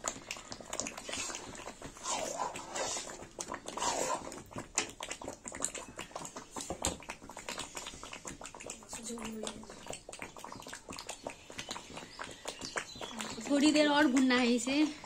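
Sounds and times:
metal ladle scraping a pan: 3.8 - 4.3.

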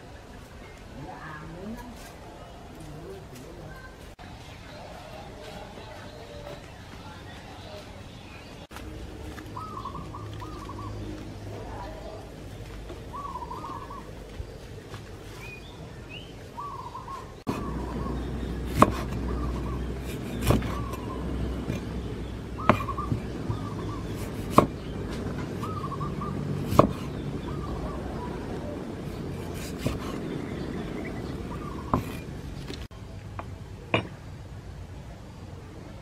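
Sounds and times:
bird calling: 5.8 - 12.2, 12.9 - 32.9
knife chopping on wooden board: 18.5 - 22.0, 22.6 - 25.8, 26.6 - 27.2, 29.0 - 30.3, 31.8 - 32.3.

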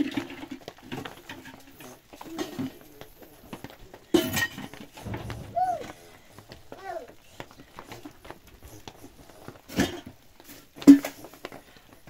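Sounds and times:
sudden loud noise: 5.0 - 6.6
toddlers babbling: 5.1 - 7.6.

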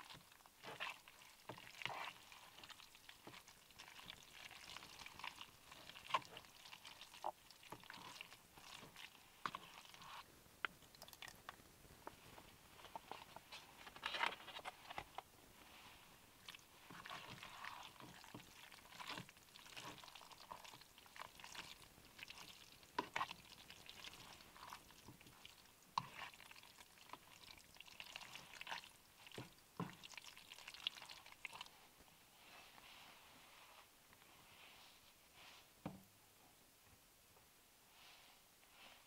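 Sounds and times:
slurping and chewing: 0.0 - 11.6, 16.4 - 31.7.

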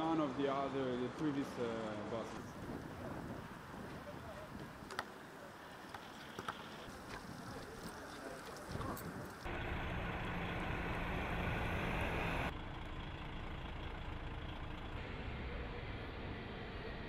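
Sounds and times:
lorry engine running: 6.5 - 17.0.

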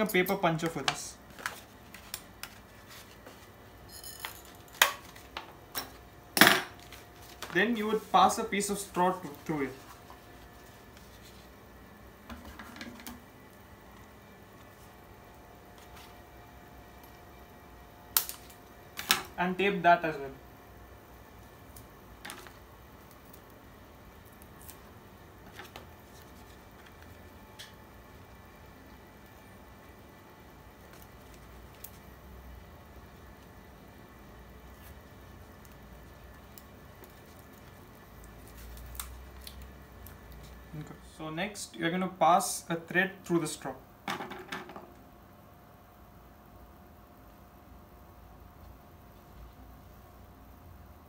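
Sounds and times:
paper handling: 1.3 - 3.6, 6.8 - 8.2.

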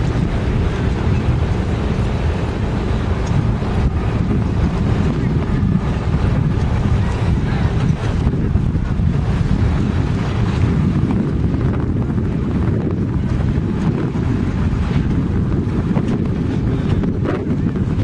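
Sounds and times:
sea water washing around hull: 0.0 - 18.0
wind buffeting microphone: 0.0 - 18.0.

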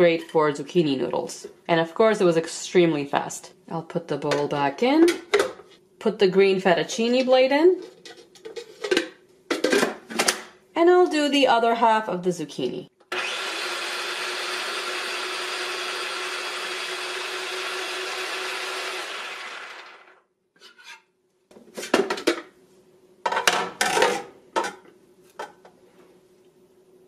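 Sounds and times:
spiralizer motor running: 13.2 - 20.2.

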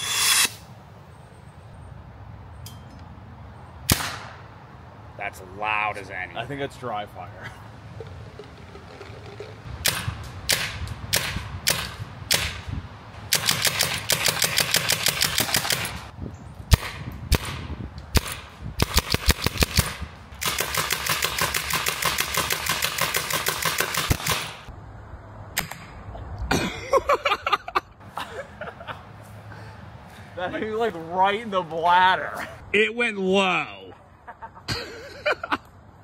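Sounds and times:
paintball marker firing: 16.7 - 24.7.

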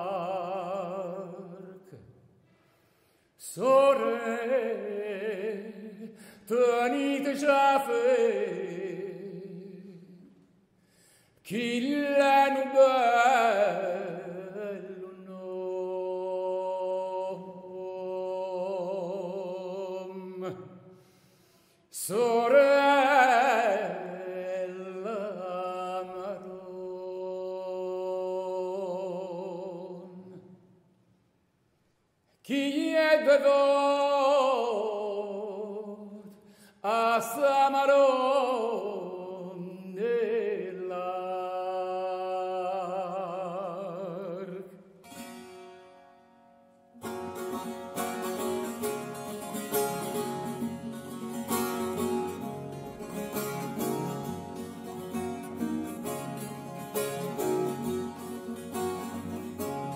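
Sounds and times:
tenor voice singing: 0.0 - 2.0, 3.4 - 10.3, 11.5 - 20.7, 21.9 - 30.4, 32.5 - 44.8
strummed guitar chords: 45.0 - 59.9
plucked strings: 45.1 - 59.9.

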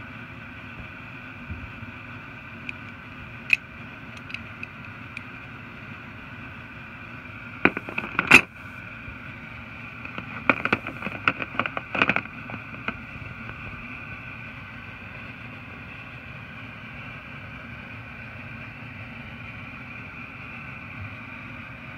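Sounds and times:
steady hum: 0.0 - 21.9
metal tools knocking on plastic case: 7.7 - 8.5, 10.1 - 12.9.

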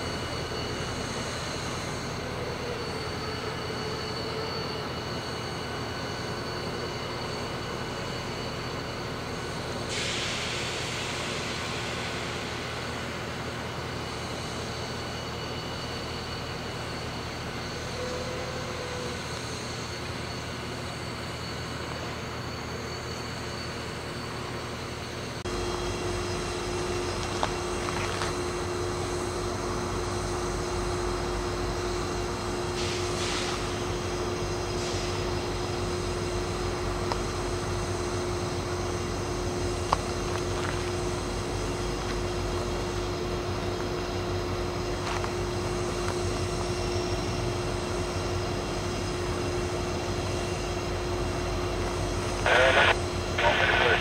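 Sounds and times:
diesel locomotive engine running: 0.0 - 54.0
hiss burst: 9.9 - 12.9.

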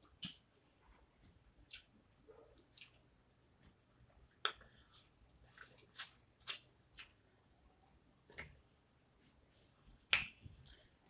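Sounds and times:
wet smacks and clicks of eating: 0.0 - 0.6, 1.6 - 2.0, 2.6 - 3.1, 4.3 - 7.2.

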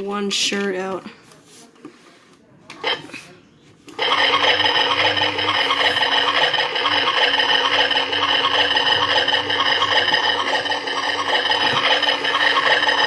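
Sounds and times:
toy washing machine motor whirring: 2.8 - 3.0, 3.9 - 13.0.

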